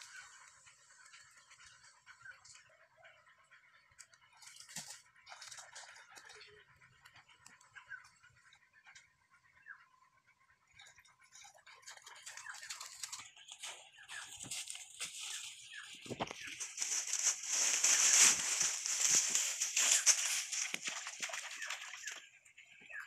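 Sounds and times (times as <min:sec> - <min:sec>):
dry leaves crackling and rustling: 0:12.6 - 0:22.2.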